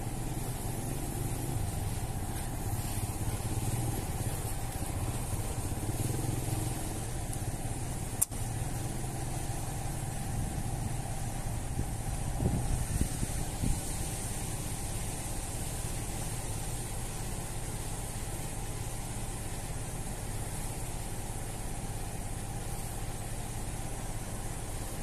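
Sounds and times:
small engine humming: 0.0 - 25.0.

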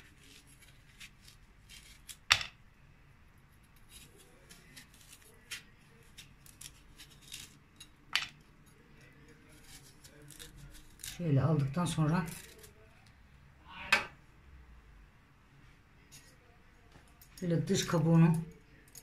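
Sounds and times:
knife scraping squash pulp: 0.0 - 2.2, 3.7 - 7.9, 9.4 - 12.8.

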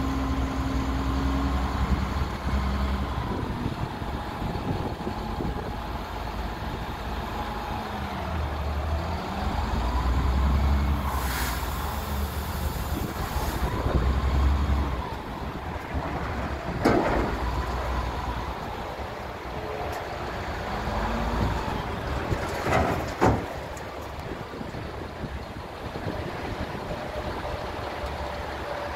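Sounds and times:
diesel truck engine revving: 0.0 - 19.6
air hissing: 11.1 - 13.7.

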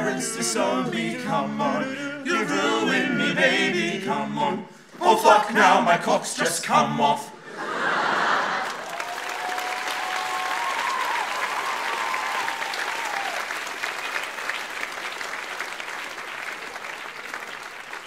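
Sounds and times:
drawn-out cheer: 7.6 - 18.0
audience applauding: 8.0 - 18.0.

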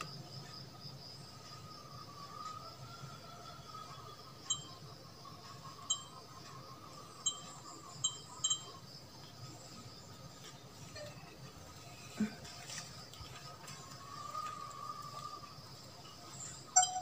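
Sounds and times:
short electronic beeps: 16.8 - 17.0.

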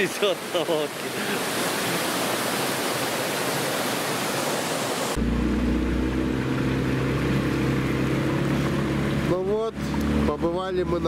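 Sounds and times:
waterfall rushing: 0.0 - 10.3
boat motor running: 5.2 - 11.0.

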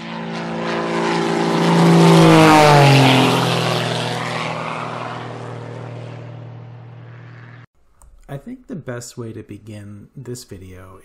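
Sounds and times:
propeller airplane engine drone: 0.0 - 7.7.

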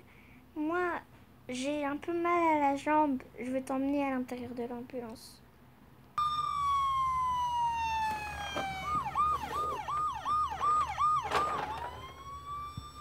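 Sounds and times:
toy electronic siren: 6.2 - 13.0.

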